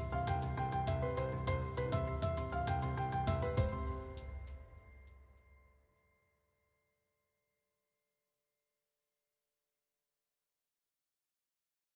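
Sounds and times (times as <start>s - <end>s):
background music with steady beat: 0.0s - 5.7s.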